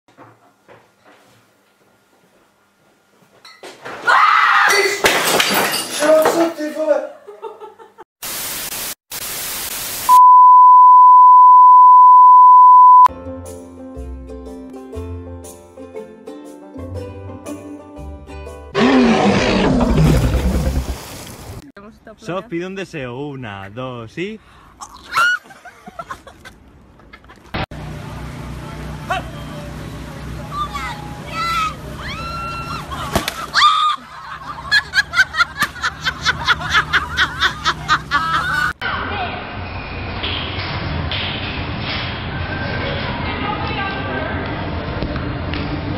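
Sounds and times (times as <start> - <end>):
pure-tone beep: 10.1 - 13.1
whooping cries: 30.5 - 34.1
loud laughter in bursts: 32.8 - 38.8.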